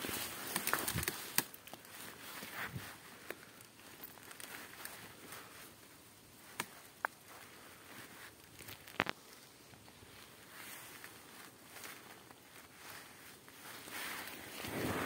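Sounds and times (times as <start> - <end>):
rustling of dry leaves: 0.0 - 15.0.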